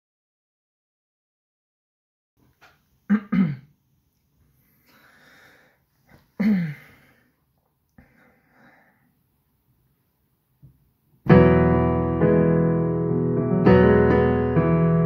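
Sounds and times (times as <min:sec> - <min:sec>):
breathing: 0:04.5 - 0:07.4, 0:08.0 - 0:09.2.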